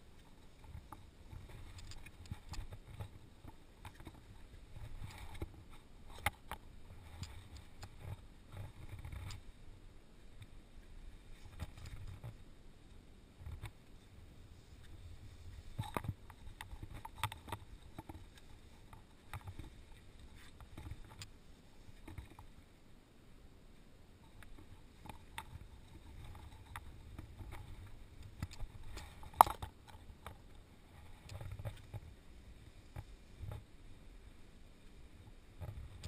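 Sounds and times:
rope gear clicking: 0:00.5 - 0:09.4, 0:24.4 - 0:32.0.

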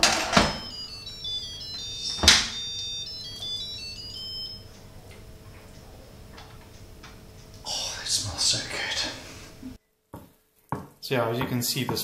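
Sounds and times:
electronic beeping tune: 0:00.0 - 0:05.2.

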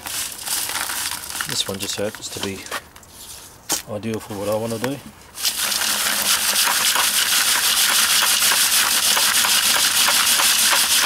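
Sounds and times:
charcoal rattling in wire sieve: 0:05.4 - 0:11.0.

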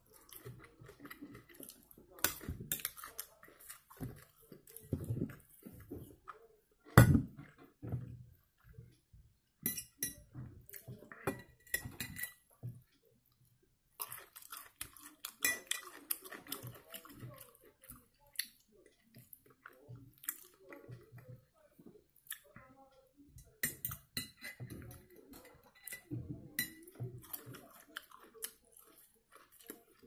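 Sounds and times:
chewing: 0:00.0 - 0:09.0, 0:12.5 - 0:22.7, 0:23.9 - 0:30.0
fork clinking on glass plate: 0:09.7 - 0:10.2.

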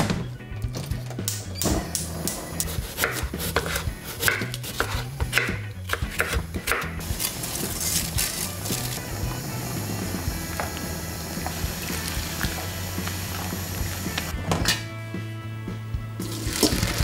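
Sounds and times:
knife chopping on wooden board: 0:02.6 - 0:07.0
boiling water hiss and bubble: 0:09.0 - 0:14.3.

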